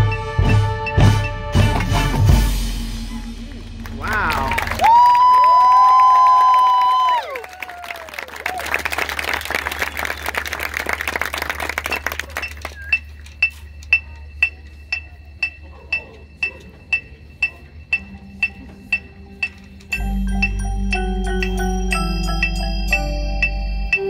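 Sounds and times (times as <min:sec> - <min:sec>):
crowd applauding: 0:03.4 - 0:13.3
bell-like percussion note: 0:19.9 - 0:24.0.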